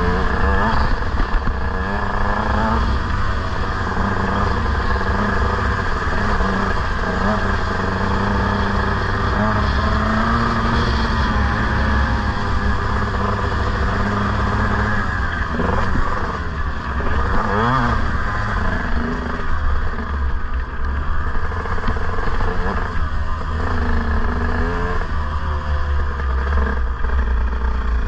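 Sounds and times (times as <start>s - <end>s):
motocross bike engine revving: 0.0s - 28.0s.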